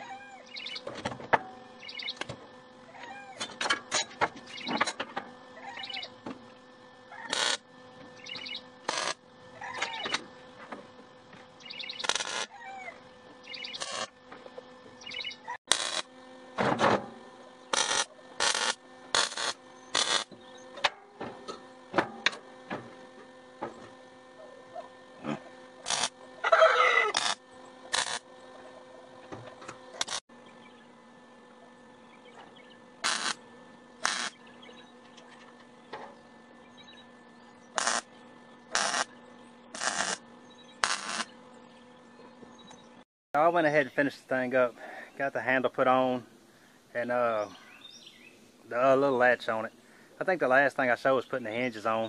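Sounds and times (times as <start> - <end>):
faint steady hum: 0.0 - 52.0
bird chirping: 0.4 - 0.9, 1.8 - 2.2, 4.5 - 4.8, 5.7 - 6.1, 8.2 - 8.7, 11.6 - 12.1, 13.4 - 13.9, 15.0 - 15.6, 47.4 - 48.4
arc welding bursts: 7.2 - 10.2, 11.2 - 12.6, 13.3 - 14.3, 15.0 - 16.2, 17.5 - 20.7, 25.4 - 28.4, 29.9 - 30.3, 32.8 - 34.9, 37.6 - 41.5.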